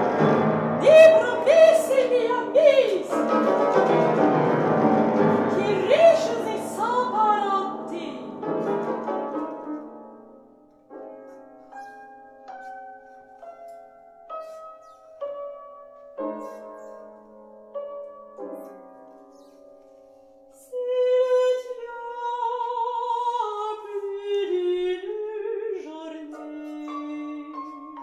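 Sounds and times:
piano chords: 0.0 - 28.0
woman singing classical: 0.8 - 3.5, 5.4 - 8.5, 20.6 - 28.0.

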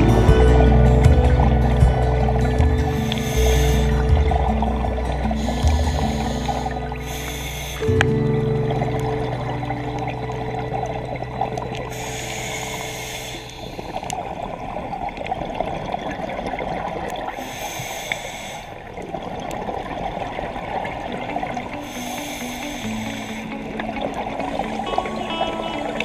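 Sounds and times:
diver breathing through regulator: 2.8 - 8.2, 11.9 - 14.6, 17.4 - 18.9, 21.8 - 23.7
underwater hiss: 2.9 - 4.1, 5.2 - 8.2, 11.8 - 14.6, 17.3 - 19.0, 21.7 - 25.0.

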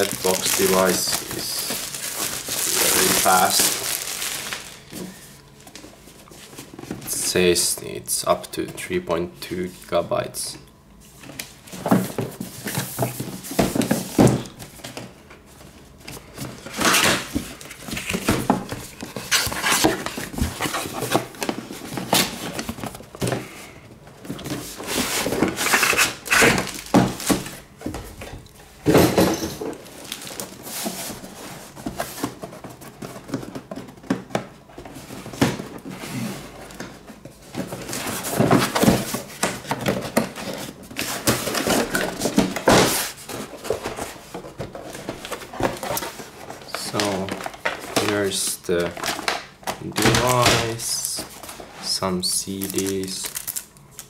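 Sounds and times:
cardboard rustling and thuds: 0.0 - 5.2, 11.2 - 15.1, 16.0 - 51.7.

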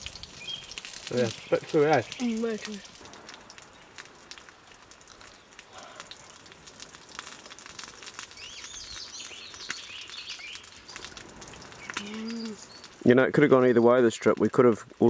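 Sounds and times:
campfire crackling: 0.0 - 15.0
bird warbling chirps: 11.8 - 12.9.

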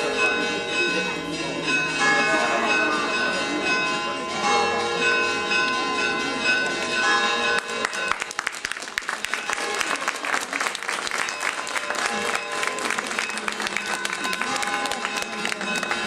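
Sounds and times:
church bells ringing: 0.0 - 16.0
crowd applauding: 6.7 - 16.0.

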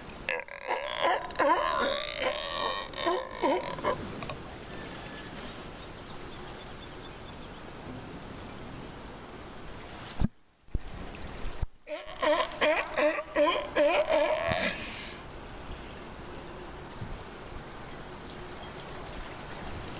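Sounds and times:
water lapping around rocks: 0.0 - 6.4, 18.3 - 19.9
sea lions calling: 0.3 - 4.4, 11.9 - 15.2.

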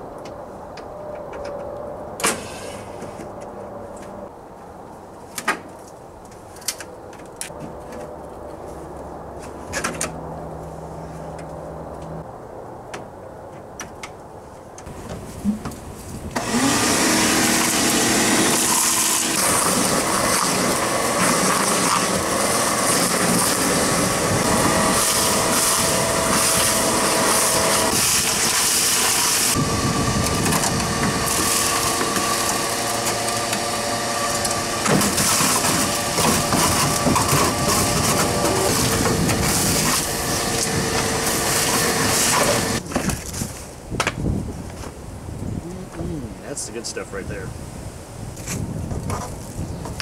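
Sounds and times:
power tool motor running: 16.4 - 42.8.

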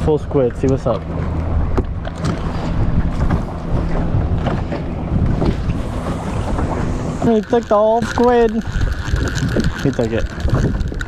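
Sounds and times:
motorboat hum: 0.0 - 11.0
wind buffeting microphone: 0.0 - 11.0
fishing rod handling clicks: 7.4 - 11.0.

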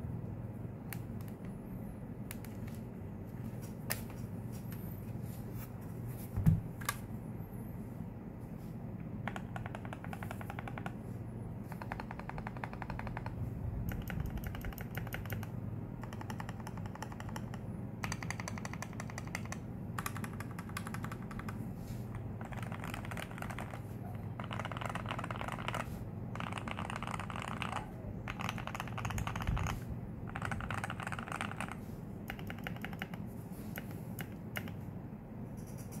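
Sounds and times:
mechanical keyboard typing: 9.2 - 11.0, 11.7 - 34.8.

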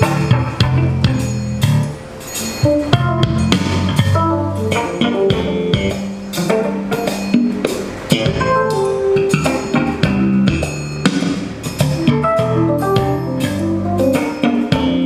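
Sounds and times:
music with drums bass and guitar: 0.0 - 15.0.

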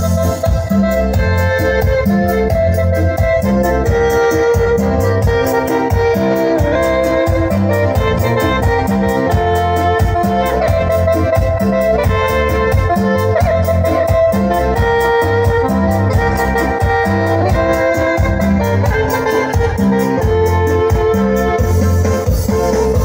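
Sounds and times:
latin dance music: 0.0 - 23.0.

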